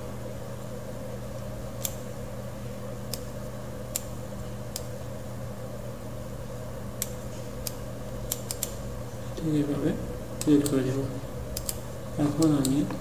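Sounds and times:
low electrical hum: 0.0 - 13.0
computer mouse clicking: 7.0 - 8.8, 11.5 - 11.8.

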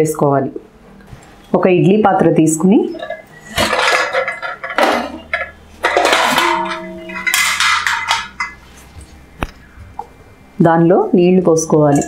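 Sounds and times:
metal plate stand rattling in pot: 2.8 - 9.1.

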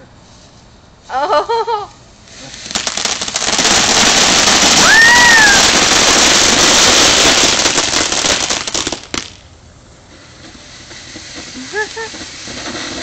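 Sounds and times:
firework fountain crackling hiss: 0.4 - 13.0
firework sharp pop: 10.4 - 13.0.

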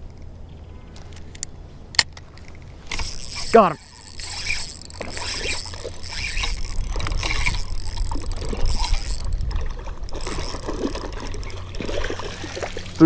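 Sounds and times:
fishing reel being cranked: 2.9 - 12.3.

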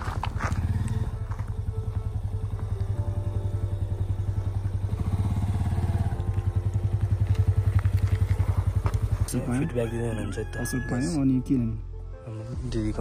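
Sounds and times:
engine running at low speed: 0.0 - 9.8.

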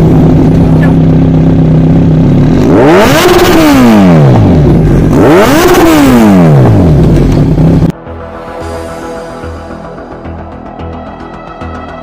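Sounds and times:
motorcycle engine idling and revving: 0.0 - 8.0.

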